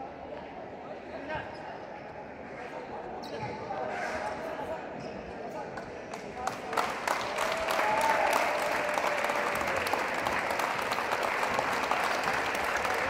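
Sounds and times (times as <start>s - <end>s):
group clapping: 6.1s - 13.0s.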